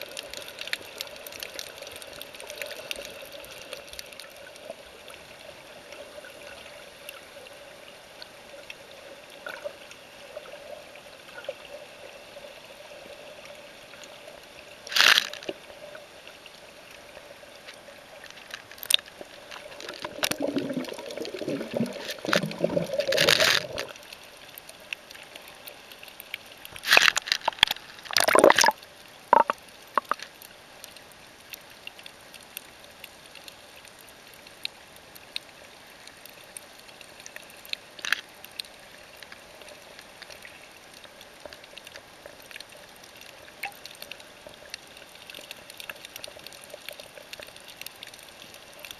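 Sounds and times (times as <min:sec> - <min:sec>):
water sloshing and bubbling: 0:00.0 - 0:48.9
loud underwater gurgling: 0:20.0 - 0:23.9, 0:28.1 - 0:29.6.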